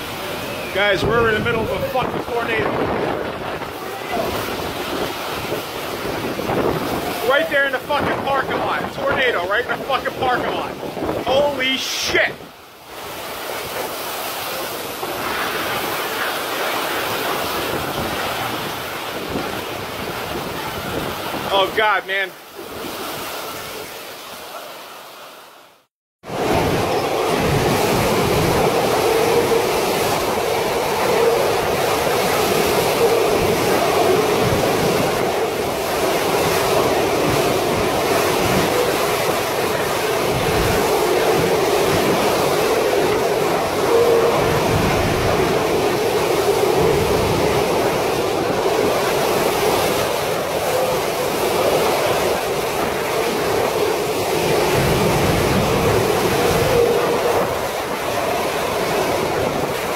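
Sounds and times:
wind buffeting microphone: 0.0 - 21.9, 26.2 - 59.9
driving rain: 0.0 - 22.5
strong wind: 0.0 - 24.7, 26.2 - 59.9
heavy rain: 0.0 - 25.0, 26.2 - 59.9.

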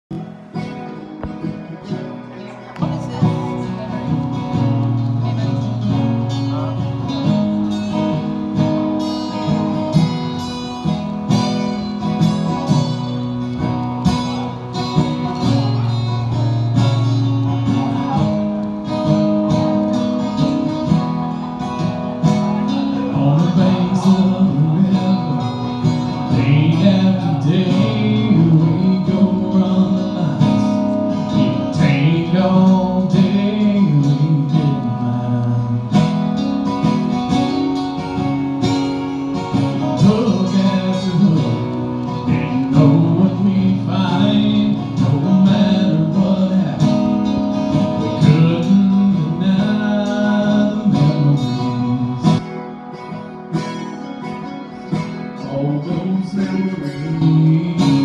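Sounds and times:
acoustic guitars strumming: 0.1 - 58.0
man singing: 22.2 - 37.0, 39.4 - 52.7, 55.2 - 58.0.

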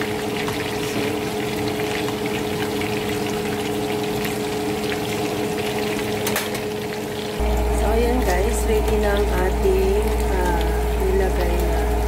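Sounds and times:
food sizzling in hot oil: 0.0 - 12.0
steady low hum: 7.2 - 12.0.

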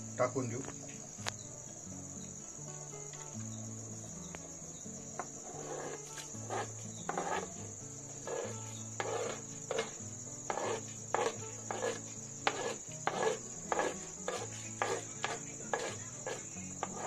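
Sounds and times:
crickets chirring: 0.0 - 17.0
spoon scraping cutting board: 5.2 - 7.6, 8.2 - 17.0.

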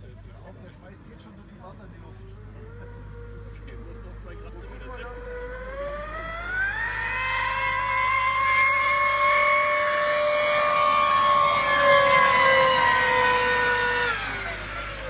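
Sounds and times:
rc boat motor whine: 0.6 - 15.0.

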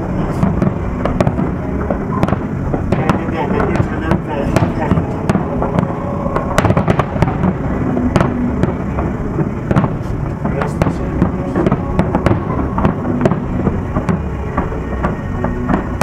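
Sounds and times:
continuous low rumble: 0.0 - 16.0
firework shells bursting: 0.0 - 16.0.

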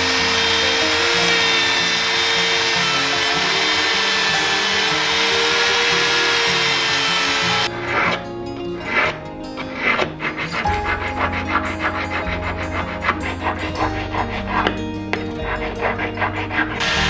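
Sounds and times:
polishing wheel abrasive hiss: 0.0 - 7.7
rotary tool motor whine: 0.0 - 8.2, 16.8 - 17.0.

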